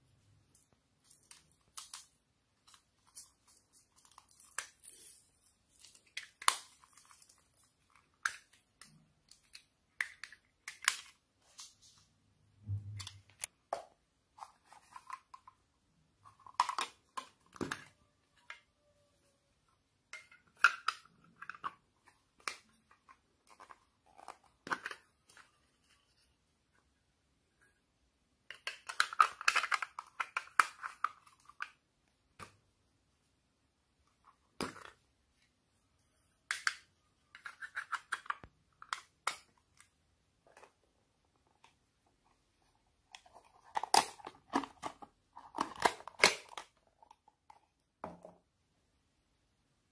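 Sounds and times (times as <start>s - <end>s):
plastic toy containers clicking: 20.1s - 25.4s, 28.5s - 31.8s, 36.5s - 39.9s, 43.2s - 47.7s.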